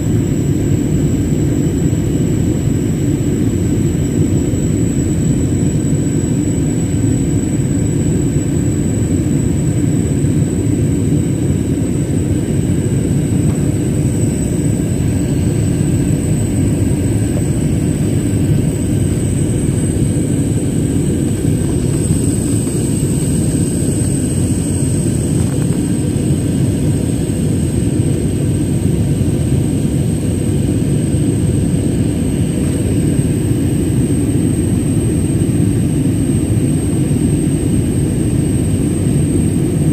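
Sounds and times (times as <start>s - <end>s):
thin high whine: 0.0s - 27.8s
jet engine cabin rumble: 0.0s - 39.9s.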